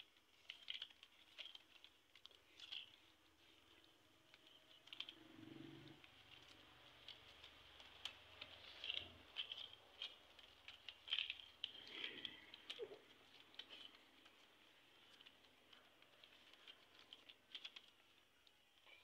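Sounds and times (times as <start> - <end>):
irregular clicks: 0.0 - 19.0.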